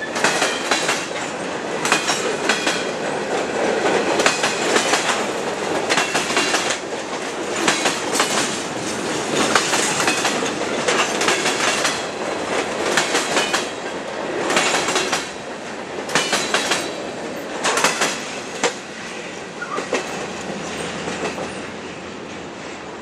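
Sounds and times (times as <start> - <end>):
train wheels clicking over rail joints: 0.0 - 22.9
freight train rumble: 0.0 - 23.0.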